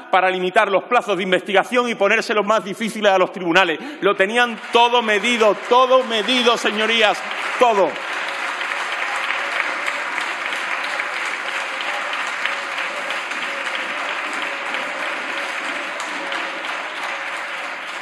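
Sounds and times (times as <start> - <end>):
crowd applauding: 4.0 - 18.0.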